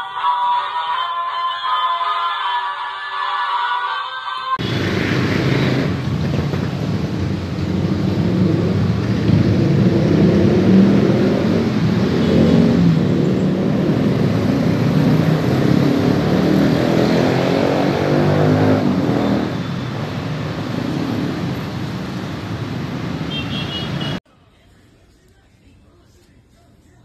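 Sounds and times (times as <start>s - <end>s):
vehicle engine running: 4.6s - 24.2s.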